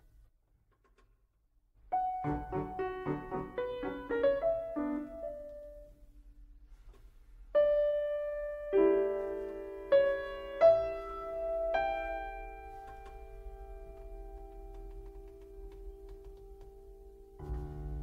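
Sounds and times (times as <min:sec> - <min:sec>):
piano music: 0:01.9 - 0:06.1, 0:07.6 - 0:18.0.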